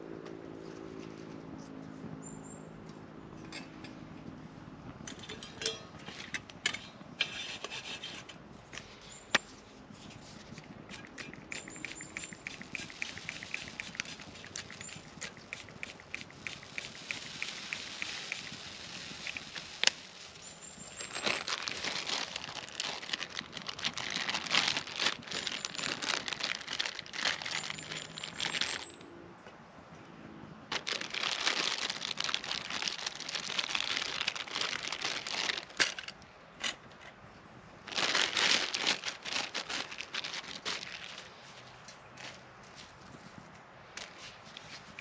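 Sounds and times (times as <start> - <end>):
plastic packaging crinkling: 11.6 - 29.0, 30.7 - 36.1, 37.9 - 41.4.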